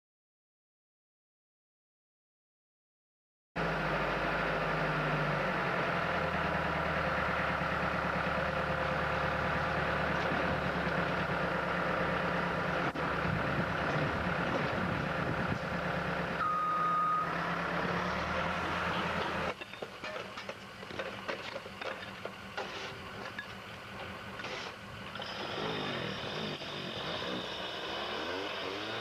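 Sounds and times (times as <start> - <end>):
diesel engine running under load: 3.6 - 29.0
short beep: 16.4 - 17.4.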